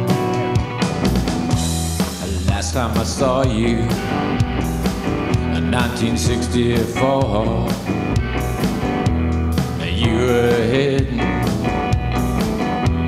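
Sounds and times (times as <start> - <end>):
rock band instrumental: 0.0 - 13.0.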